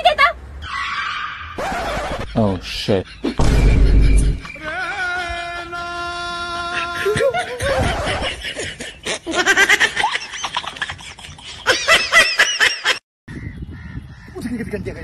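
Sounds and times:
laughter in quick bursts: 7.0s - 13.0s.

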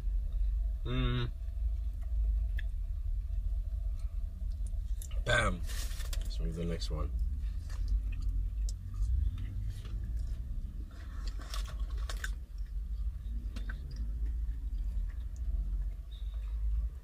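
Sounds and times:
low rumble: 0.0s - 17.0s
chewing crispy fried chicken: 7.2s - 16.9s.

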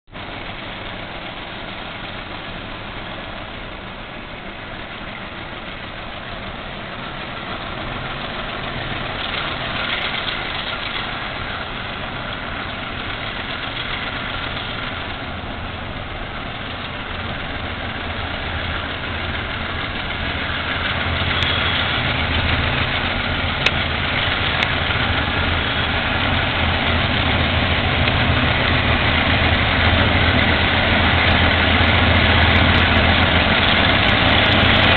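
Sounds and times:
diesel locomotives rumbling: 0.0s - 34.9s.

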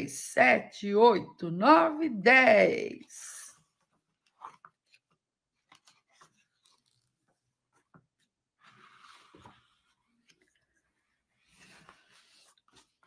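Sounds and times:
book pages rustling: 3.6s - 13.0s
page turning: 3.8s - 10.8s, 11.4s - 13.0s.

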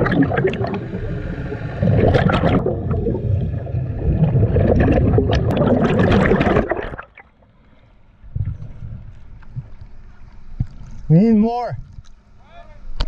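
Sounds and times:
underwater air bubbles gurgling: 0.0s - 7.2s.

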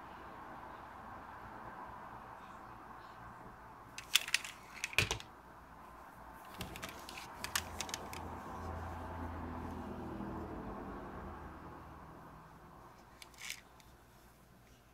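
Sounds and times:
toy cars clicking and knocking: 4.0s - 5.3s, 6.5s - 8.3s, 13.1s - 13.9s.

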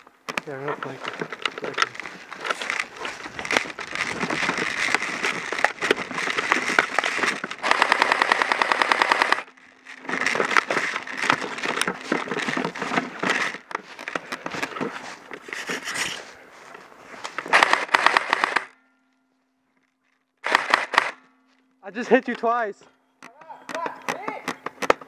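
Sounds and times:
footsteps crunching through snow: 0.4s - 7.6s, 9.9s - 17.5s
airsoft rifle full-auto burst: 6.4s - 9.5s, 17.5s - 18.7s, 20.4s - 21.2s.

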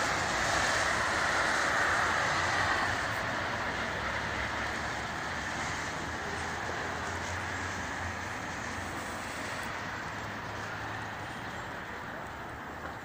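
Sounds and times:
distant city traffic: 0.0s - 13.0s.

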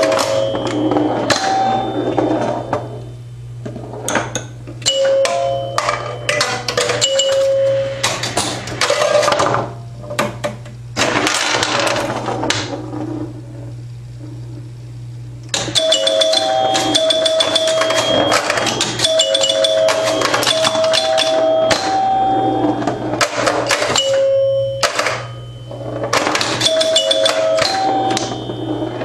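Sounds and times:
pinball machine clacking: 0.0s - 3.0s, 4.0s - 12.7s, 15.5s - 29.0s
low electrical hum: 0.0s - 29.0s
scoring chimes ringing: 4.8s - 8.1s, 15.7s - 23.0s, 23.9s - 29.0s.

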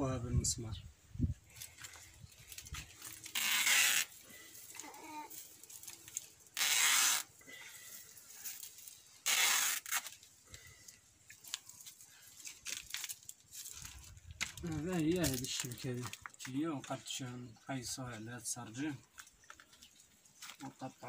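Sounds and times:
mesh screen rustling: 1.5s - 16.6s.

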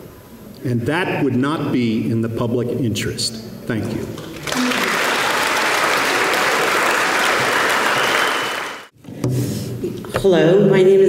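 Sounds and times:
audience applauding: 4.2s - 8.9s.

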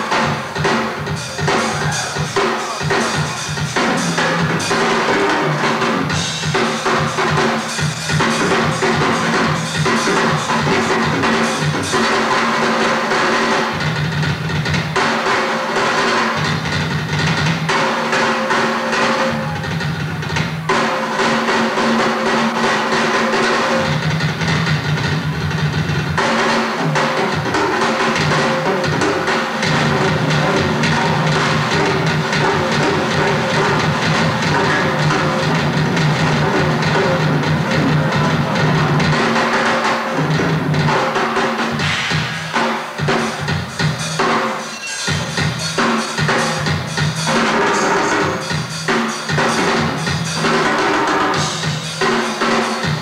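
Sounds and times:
drum solo: 0.0s - 53.0s.

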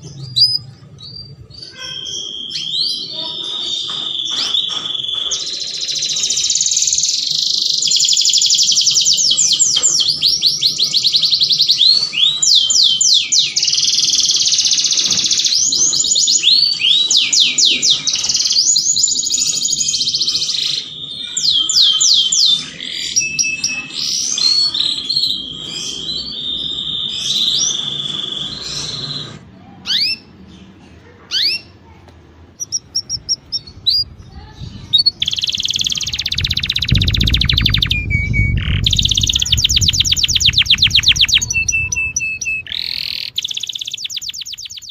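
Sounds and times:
canary singing trills: 0.0s - 31.8s, 32.6s - 44.9s
low rumble: 33.1s - 43.4s.

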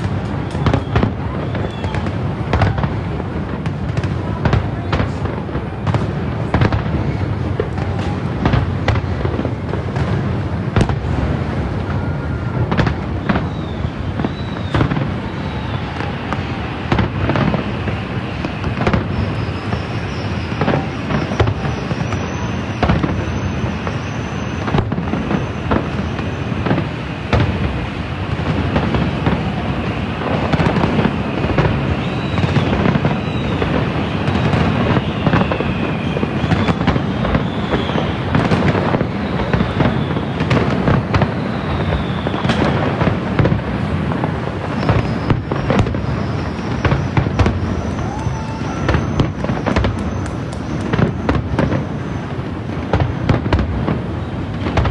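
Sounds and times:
fireworks bangs and crackles: 0.0s - 54.9s
fireworks whistles: 0.0s - 54.9s.

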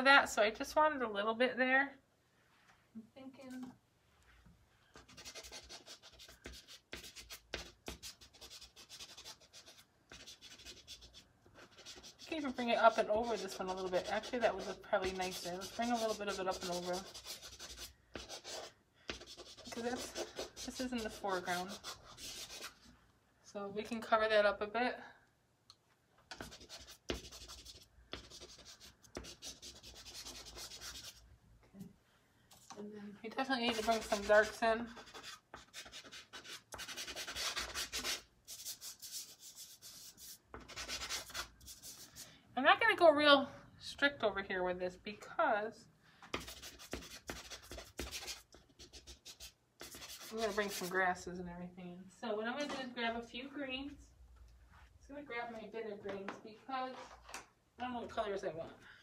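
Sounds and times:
pastel scratching on paper: 5.0s - 22.9s, 26.3s - 31.2s, 33.6s - 42.2s, 46.4s - 51.0s.

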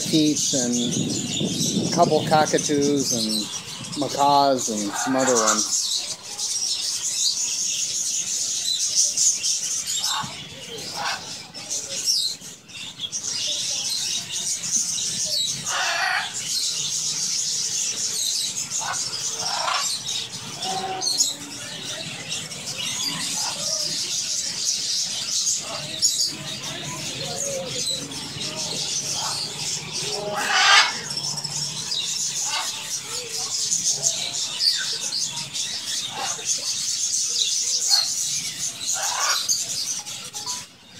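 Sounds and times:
budgerigars twittering: 0.0s - 40.9s
louder lower bird calls: 9.7s - 12.6s, 14.2s - 36.6s, 37.8s - 40.7s.

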